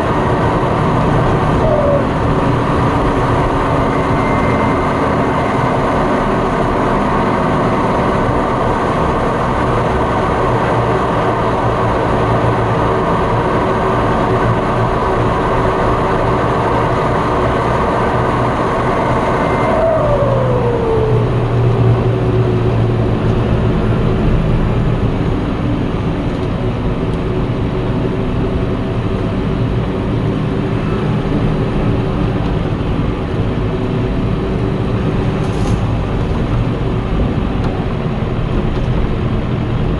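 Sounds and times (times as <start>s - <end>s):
tractor engine running: 0.0s - 39.9s
turbo whine spooling down: 0.1s - 8.5s, 15.3s - 23.1s
high turbo whistle: 1.4s - 6.4s, 18.4s - 22.6s.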